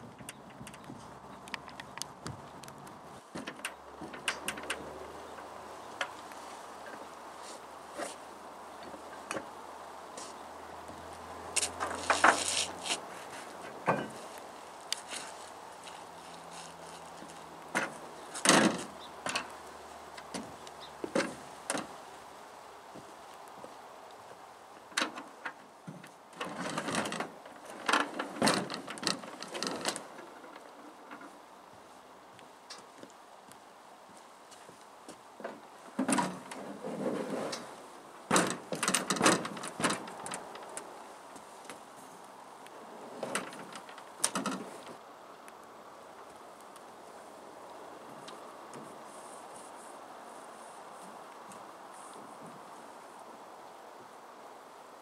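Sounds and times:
metal boat scraping on dock: 0:11.6 - 0:14.4, 0:36.0 - 0:40.4
hollow metal knocks: 0:13.8 - 0:14.2
oars clanking in aluminum boat: 0:25.0 - 0:31.3, 0:38.3 - 0:40.5.

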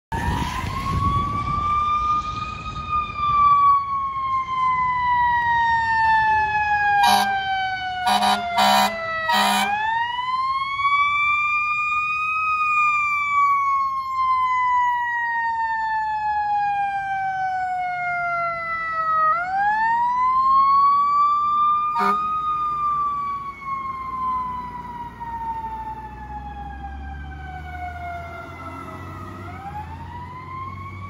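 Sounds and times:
fire engine siren wailing: 0:00.1 - 0:31.0
short horn blasts: 0:07.0 - 0:07.4, 0:08.0 - 0:09.8, 0:22.0 - 0:22.3.

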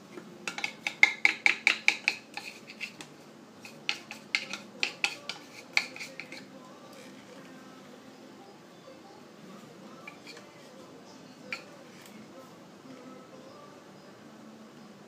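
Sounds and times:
utensils clinking against dishes: 0:00.4 - 0:07.3, 0:10.0 - 0:12.2.

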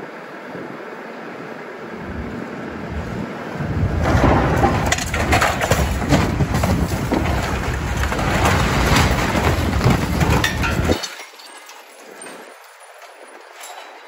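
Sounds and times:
low machine rumble: 0:00.5 - 0:11.0
rubble and wood crashing: 0:02.0 - 0:14.0.

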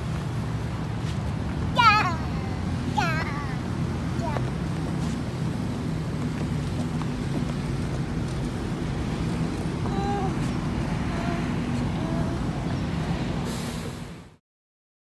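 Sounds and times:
road traffic rumble: 0:00.0 - 0:14.4.

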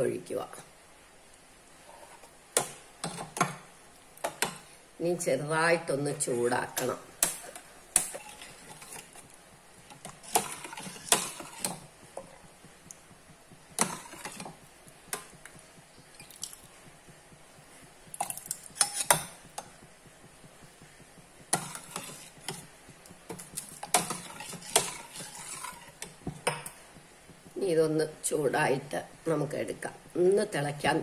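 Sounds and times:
spoon scraping steel pot: 0:06.2 - 0:12.5, 0:13.7 - 0:15.4, 0:18.2 - 0:19.7, 0:21.4 - 0:22.7, 0:23.3 - 0:26.8.

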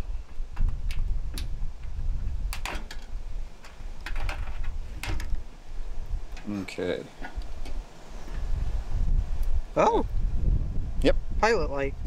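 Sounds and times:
wire connectors clicking off: 0:00.6 - 0:01.9, 0:02.5 - 0:05.4.

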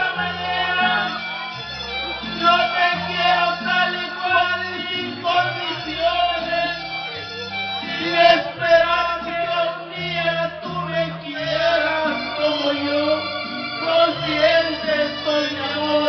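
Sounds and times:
man singing into a microphone: 0:00.0 - 0:01.5, 0:02.1 - 0:07.2, 0:07.8 - 0:16.0
backing music with bass line: 0:00.0 - 0:16.0.

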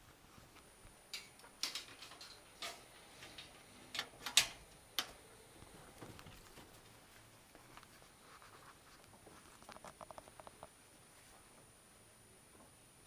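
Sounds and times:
wire-mesh door clicking and knocking: 0:01.2 - 0:05.2.

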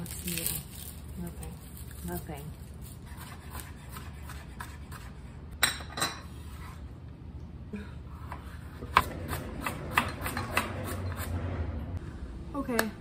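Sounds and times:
knife chopping on cutting board: 0:03.1 - 0:05.2.

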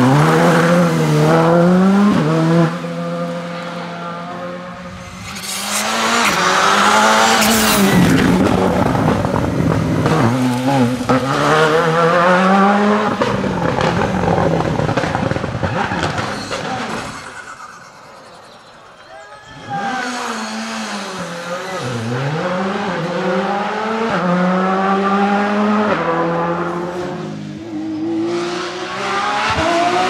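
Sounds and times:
rally car engines at full throttle: 0:00.0 - 0:30.0
engine revving through gear changes: 0:05.2 - 0:17.4.

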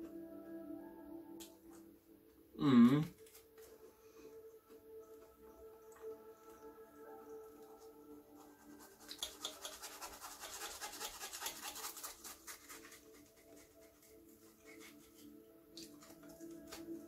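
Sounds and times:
faint background music: 0:00.0 - 0:17.0
scratchy rustling in hands: 0:08.3 - 0:17.0.

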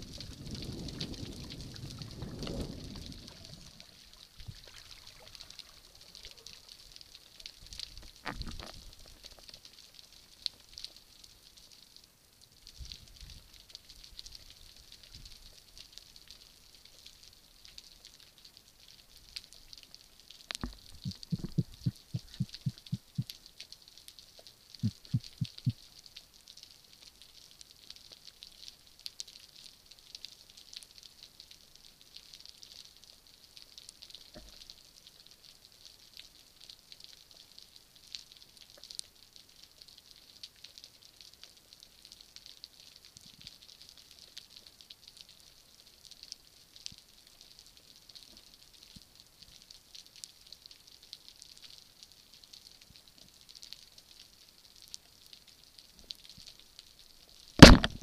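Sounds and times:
underwater fine crackling: 0:00.0 - 0:58.0
low pulses underwater: 0:20.5 - 0:23.3, 0:24.8 - 0:25.8, 0:57.6 - 0:58.0
sharp click: 0:57.6 - 0:58.0.

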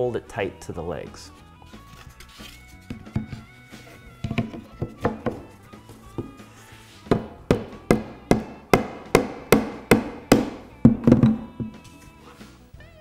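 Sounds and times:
faint background music: 0:00.0 - 0:13.0
knocking on wood: 0:04.2 - 0:05.5, 0:07.1 - 0:11.8.

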